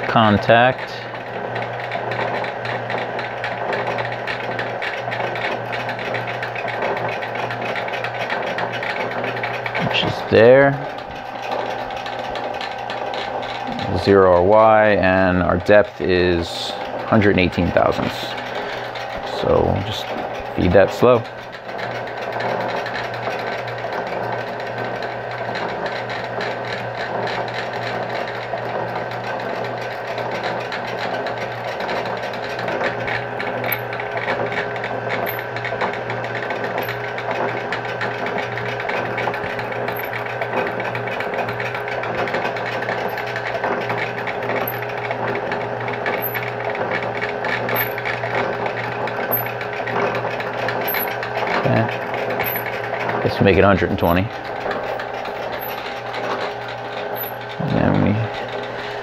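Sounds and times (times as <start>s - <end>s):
low motor hum: 0.0s - 59.0s
metal shaper cutting metal: 0.0s - 59.0s
metal shaper ram clattering: 38.8s - 53.2s, 54.4s - 57.5s.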